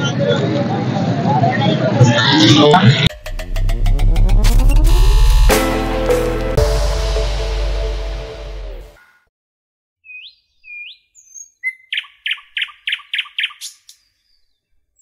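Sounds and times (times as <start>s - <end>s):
small birds chirping: 10.0s - 15.0s.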